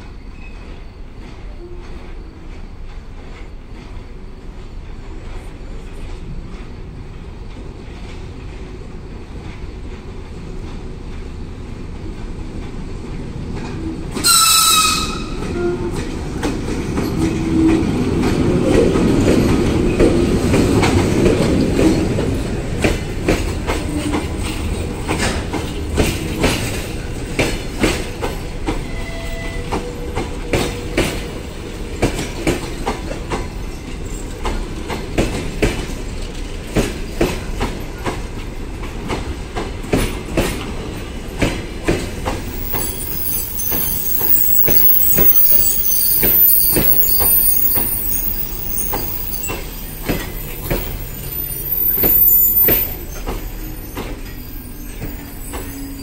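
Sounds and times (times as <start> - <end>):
train rumbling past: 0.0 - 56.0
wheels clicking over rail joints: 0.4 - 55.8
high squeal: 42.5 - 56.0.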